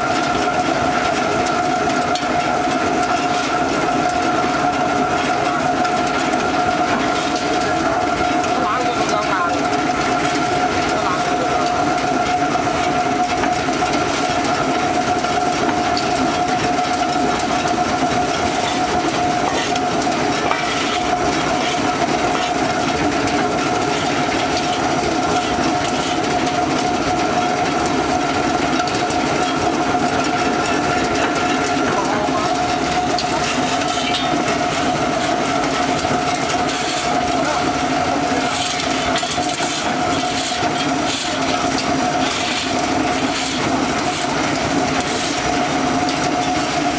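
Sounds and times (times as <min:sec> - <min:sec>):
pellet mill running with whine: 0:00.0 - 0:46.9
shovel scraping ground: 0:20.5 - 0:21.8, 0:36.7 - 0:37.2, 0:38.4 - 0:41.5, 0:42.2 - 0:44.4, 0:45.0 - 0:45.4.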